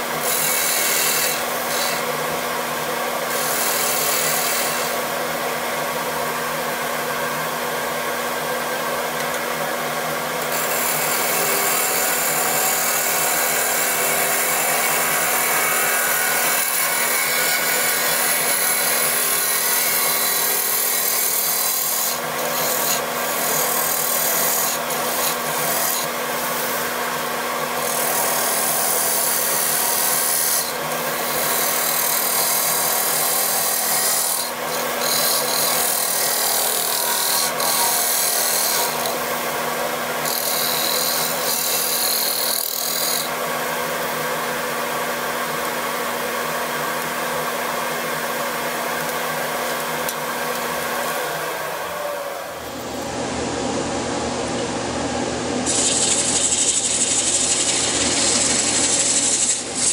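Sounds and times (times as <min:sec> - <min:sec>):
gouge scraping wood on lathe: 0:16.0 - 0:26.7, 0:31.4 - 0:39.2, 0:40.2 - 0:43.2, 0:55.7 - 0:59.9
lathe motor hum: 0:31.4 - 0:59.9.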